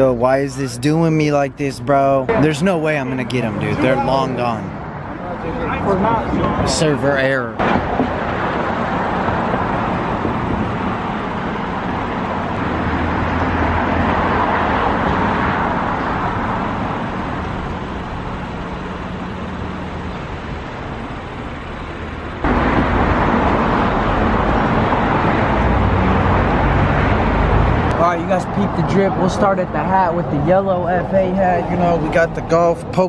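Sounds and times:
passing cars: 0.0s - 33.0s
heavy vehicle passing: 2.2s - 33.0s.

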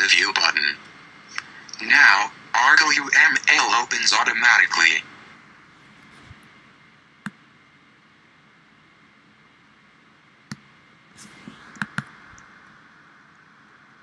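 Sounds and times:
faint steady hiss: 0.0s - 14.0s
computer mouse clicks: 11.6s - 12.8s.

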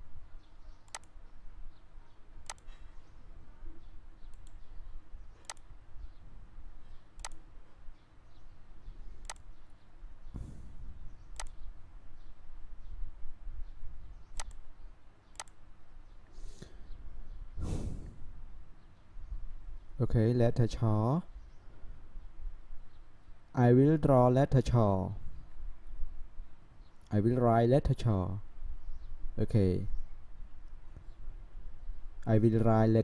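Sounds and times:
mouse button clicking: 2.4s - 2.8s, 5.4s - 5.7s, 7.2s - 7.4s, 9.2s - 9.5s, 14.3s - 14.6s.

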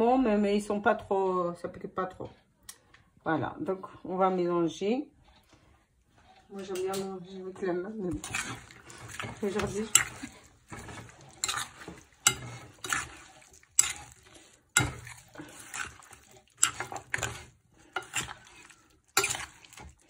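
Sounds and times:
hand mixing food in bowl: 5.0s - 20.0s.

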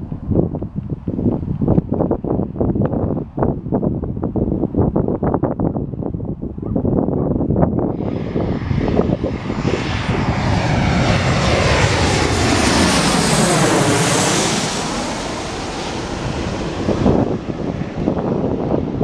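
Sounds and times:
wind buffeting microphone: 0.0s - 19.0s
jet engines roaring: 7.8s - 19.0s.

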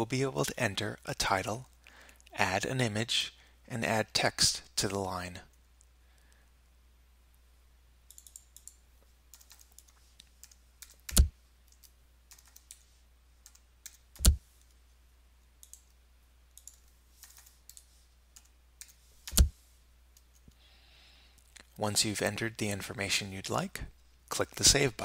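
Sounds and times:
keyboard key clicks: 10.8s - 12.6s, 13.5s - 14.4s, 19.3s - 19.5s.

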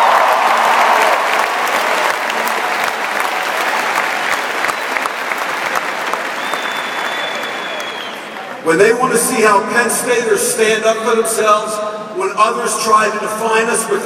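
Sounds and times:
crowd applauding and cheering: 0.0s - 8.6s.

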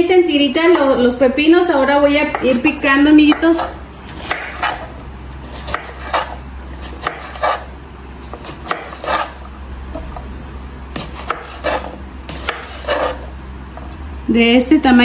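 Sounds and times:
knife chopping on wooden board: 1.8s - 4.9s, 5.5s - 7.7s, 8.3s - 10.2s, 10.9s - 13.9s.

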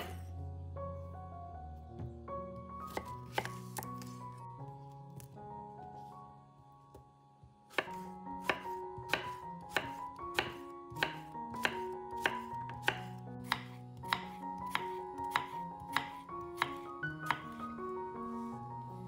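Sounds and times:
knife chopping on cutting board: 0.0s - 0.2s, 2.9s - 4.1s, 7.7s - 17.5s
background music: 0.0s - 19.0s.

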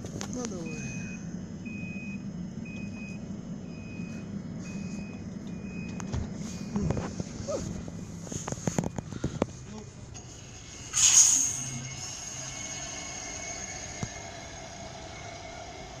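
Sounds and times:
tram low hum: 0.0s - 16.0s
tram warning beeps: 0.5s - 7.2s.

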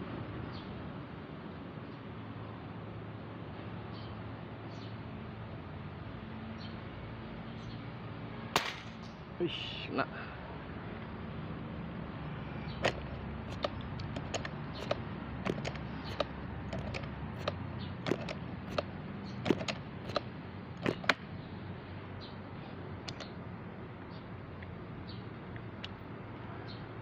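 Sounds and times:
handling clicks and knocks: 12.8s - 21.3s, 23.0s - 23.3s.

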